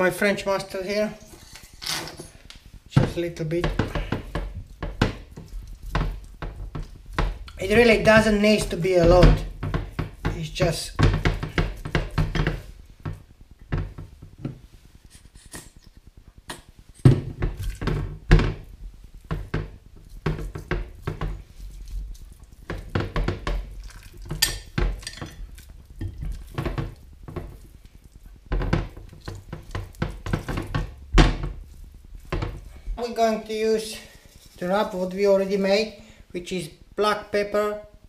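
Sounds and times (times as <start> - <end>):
hands slapping wet meat: 19.3 - 28.2.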